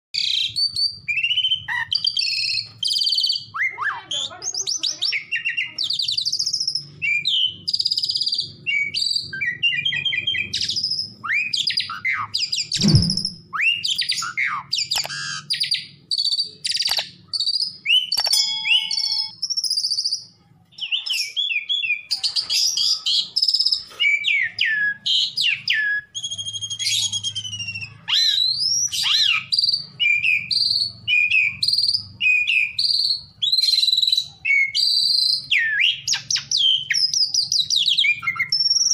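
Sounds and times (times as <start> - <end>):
starling singing: 0.2 - 38.9
sharp thump: 12.8 - 13.4.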